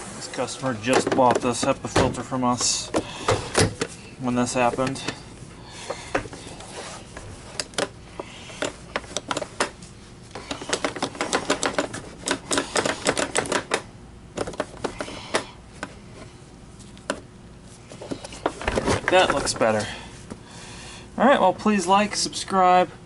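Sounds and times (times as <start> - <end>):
cloth rubbing on plastic: 6.6 - 7.5.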